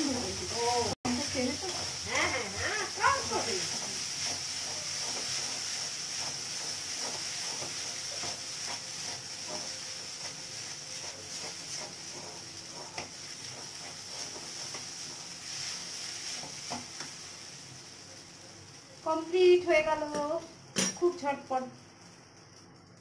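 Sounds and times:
noodles sizzling in a pan: 0.0 - 23.0
utensils scraping and tapping pan: 1.1 - 17.2.

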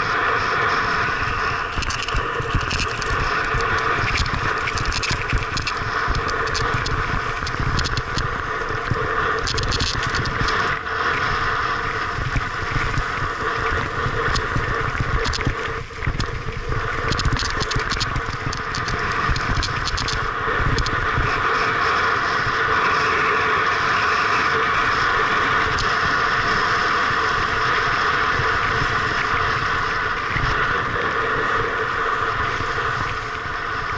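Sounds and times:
low rumble on microphone: 0.0 - 23.0
bike rattling: 1.3 - 10.7, 12.8 - 20.9
sharp clicks from stones: 1.7 - 10.6, 14.2 - 16.3, 17.0 - 21.0.

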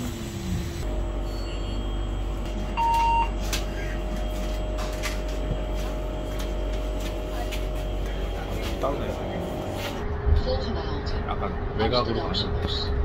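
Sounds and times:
bus engine hum: 0.0 - 13.0
card reader beep: 2.8 - 3.4.

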